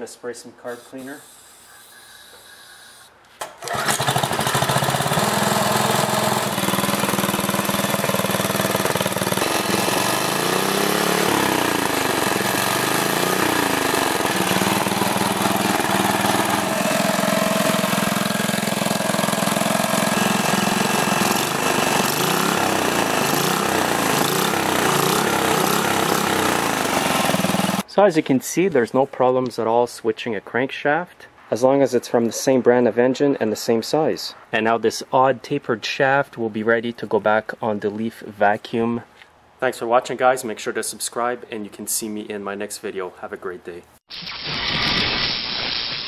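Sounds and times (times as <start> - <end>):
small engine pull-started: 1.0 - 27.8
small engine running steadily: 3.6 - 27.9.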